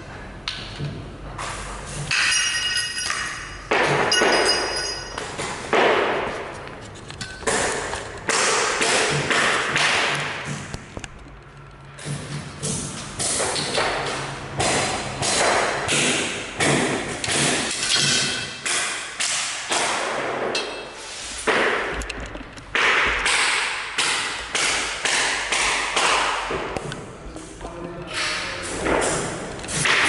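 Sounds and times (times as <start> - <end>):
hammer strikes with metallic ring: 2.1 - 5.5.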